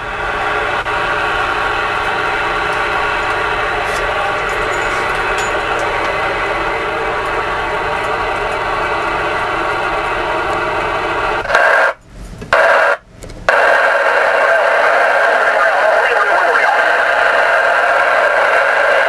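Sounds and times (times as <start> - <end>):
steady hum-like tones: 0.0 - 19.0
radio speaker hissing: 11.5 - 19.0.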